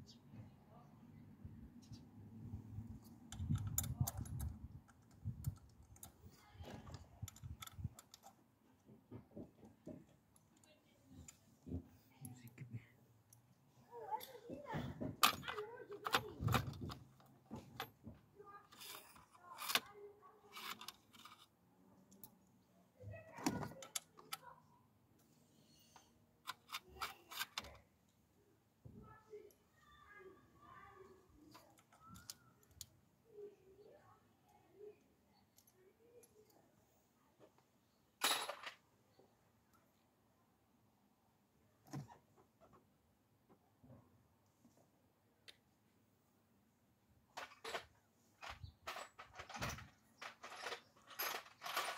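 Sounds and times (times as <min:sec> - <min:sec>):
hand tool clicks and knocks: 0:03.3 - 0:06.2, 0:06.8 - 0:08.4
metal tools clicking and clinking: 0:03.3 - 0:06.2, 0:06.8 - 0:08.4, 0:15.2 - 0:17.9, 0:18.7 - 0:19.9, 0:20.5 - 0:21.5, 0:26.5 - 0:27.8, 0:47.4 - 0:51.9.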